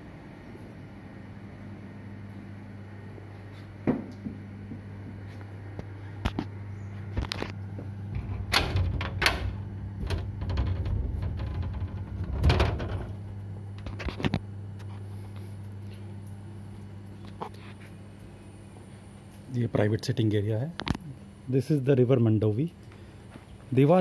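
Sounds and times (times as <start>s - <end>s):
steady low hum: 0.0s - 24.0s
door rattling and scraping: 8.1s - 14.2s.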